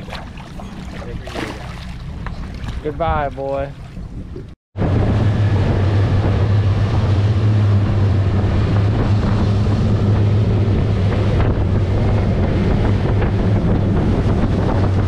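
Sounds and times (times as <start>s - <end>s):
wake rushing: 0.0s - 4.6s
outboard motors droning: 0.0s - 15.0s
wind buffeting microphone: 0.0s - 15.0s.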